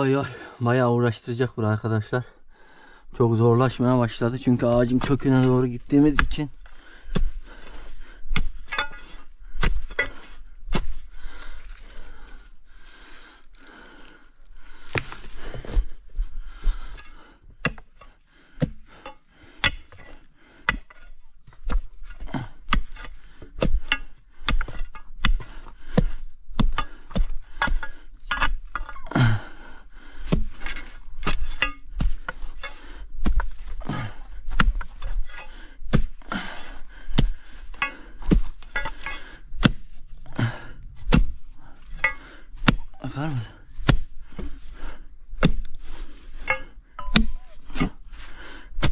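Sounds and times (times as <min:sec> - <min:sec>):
digging tool striking hard ground: 0:04.4 - 0:06.5, 0:07.1 - 0:11.0, 0:18.6 - 0:20.0, 0:20.7 - 0:29.4, 0:30.2 - 0:36.2, 0:37.1 - 0:40.0, 0:41.0 - 0:44.5, 0:45.3 - 0:45.7, 0:46.4 - 0:48.0.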